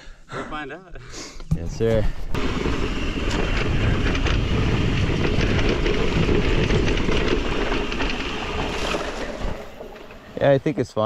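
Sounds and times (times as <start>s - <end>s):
bike tyre noise: 1.6s - 10.9s
bike rattling: 1.6s - 11.0s
wind buffeting microphone: 1.7s - 10.4s.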